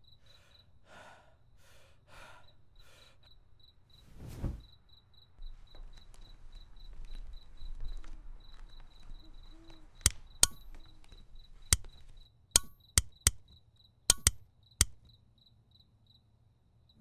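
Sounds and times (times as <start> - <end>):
crickets chirping: 0.0 - 17.0
light switch clicking: 10.4 - 10.7, 12.6 - 13.4, 14.1 - 15.0.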